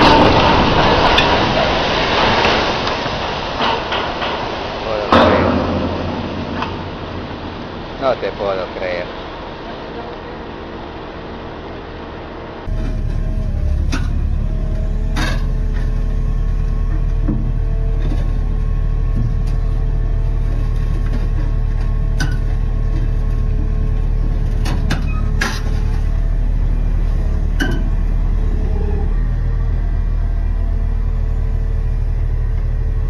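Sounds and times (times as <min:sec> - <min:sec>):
excavator diesel engine rumbling: 0:00.0 - 0:33.0
sharp metallic clanks: 0:05.1 - 0:09.1.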